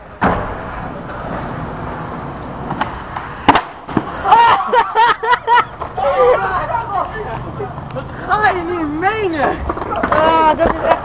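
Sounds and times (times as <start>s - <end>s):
skateboard wheels rolling on concrete: 0.0s - 11.0s
skateboard cracking on ground: 2.6s - 4.4s, 9.4s - 11.0s
people shouting: 4.2s - 5.1s.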